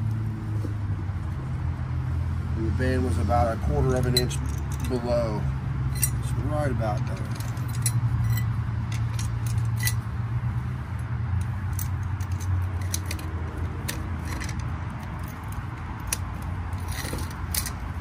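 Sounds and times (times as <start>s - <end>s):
metal clinking and rattling: 4.0s - 5.0s, 5.9s - 6.3s, 6.9s - 10.1s, 11.4s - 18.0s.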